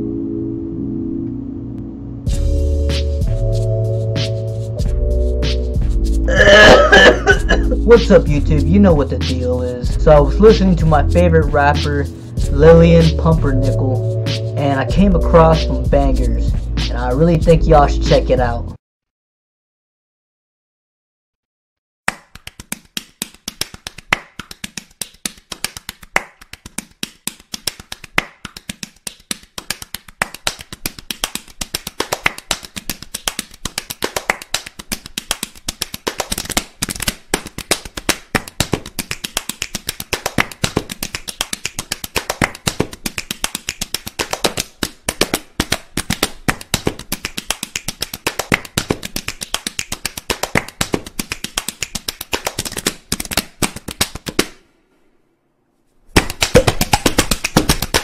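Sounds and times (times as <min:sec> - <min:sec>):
hands slapping bare skin: 0:22.1 - 0:54.6, 0:56.1 - 0:58.0.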